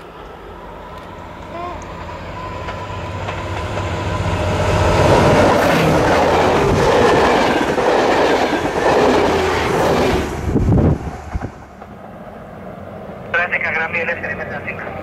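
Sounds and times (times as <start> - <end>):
diesel locomotive passing: 0.0 - 15.0
train wheels clacking on rails: 2.5 - 10.4.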